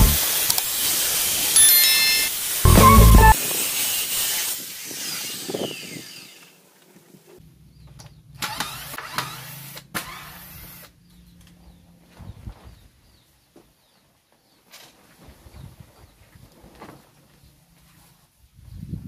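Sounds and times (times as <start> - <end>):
circular saw cutting wood: 0.0 - 6.6
saw blade spinning down: 1.4 - 3.4.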